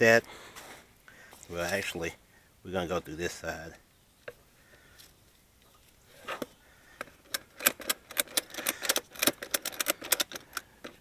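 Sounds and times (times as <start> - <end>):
ratchet buckle clicking: 7.3 - 11.0.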